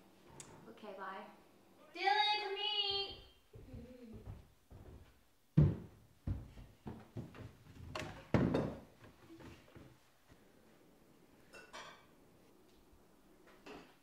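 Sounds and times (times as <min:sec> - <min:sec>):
footsteps on wooden stairs: 0:03.6 - 0:10.0.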